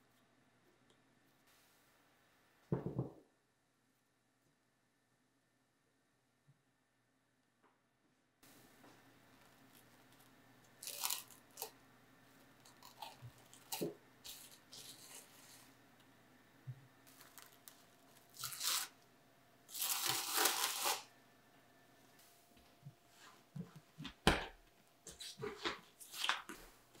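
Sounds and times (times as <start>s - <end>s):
cling film crinkling: 9.4s - 11.8s, 17.0s - 19.0s, 19.7s - 21.1s
cling film tearing crackles: 10.8s - 11.8s, 17.0s - 19.0s, 19.7s - 21.1s.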